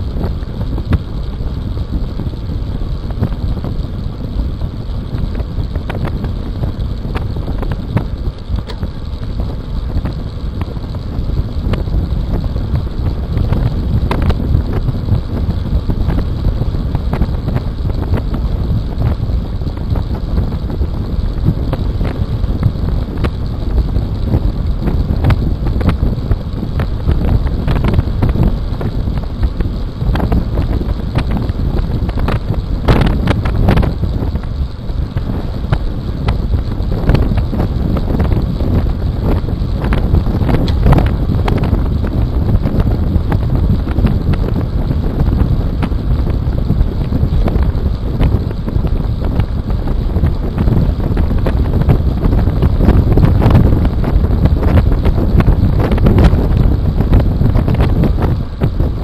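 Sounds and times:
tyre noise on rough road: 0.0 - 59.0
wind buffeting microphone: 0.0 - 59.0.

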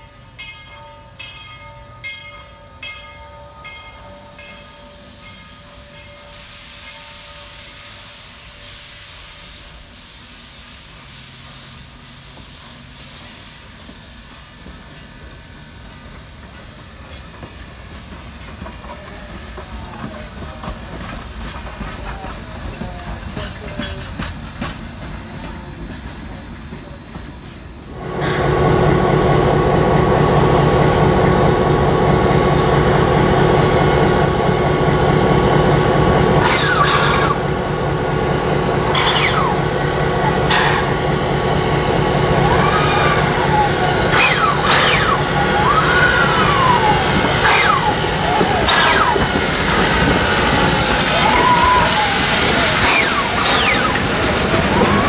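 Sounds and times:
diesel locomotive idling: 0.0 - 55.0
steam locomotive hissing: 3.5 - 55.0
rising and falling whistle: 38.9 - 41.1, 42.0 - 55.0.

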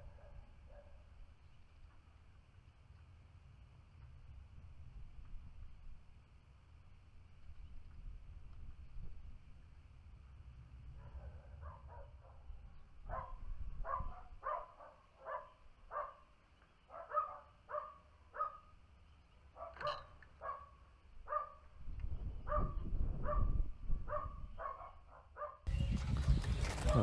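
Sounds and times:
dog barking: 0.0 - 1.0, 11.0 - 12.5, 13.1 - 16.3, 16.9 - 18.7, 19.6 - 21.6, 22.5 - 25.6.

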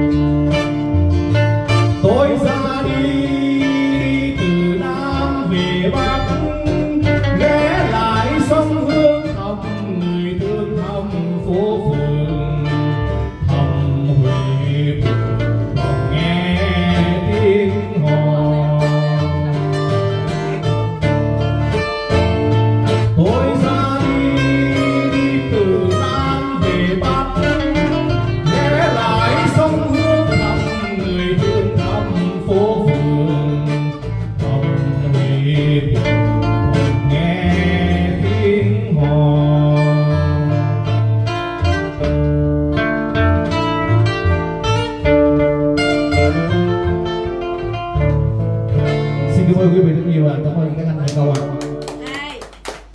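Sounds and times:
acoustic guitars: 0.0 - 52.9
electric bass guitar: 0.0 - 52.9
man singing into a microphone: 1.7 - 20.5, 22.8 - 42.0, 49.0 - 51.6.

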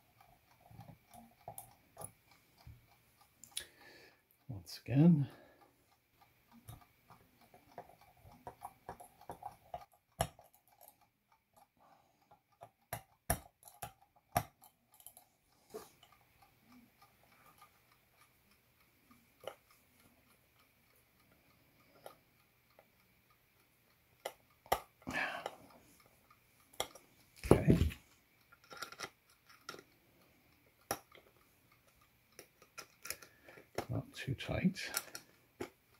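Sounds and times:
screwdriver clicks and taps on metal: 12.5 - 15.2.

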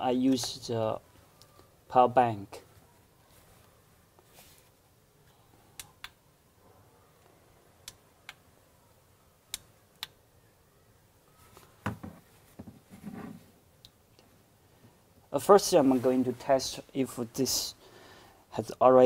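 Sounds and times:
objects set down on a table: 11.8 - 13.4.

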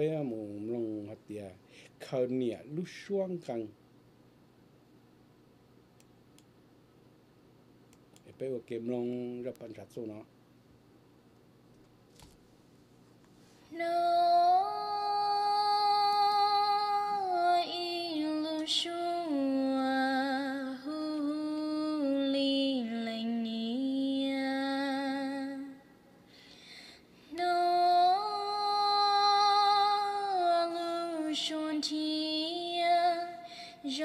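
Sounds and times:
woman singing with vibrato: 13.7 - 26.0, 27.3 - 34.0.

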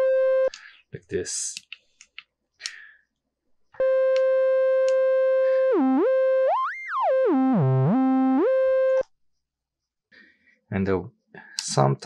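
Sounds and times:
synthesizer held note stepping octaves: 0.0 - 0.5, 3.8 - 9.0.

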